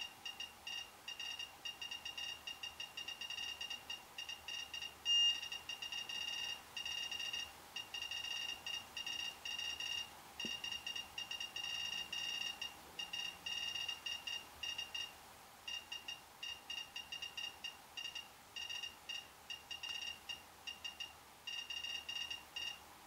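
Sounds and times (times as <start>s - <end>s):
radiation detector beeping: 0.0s - 15.1s, 15.7s - 22.8s.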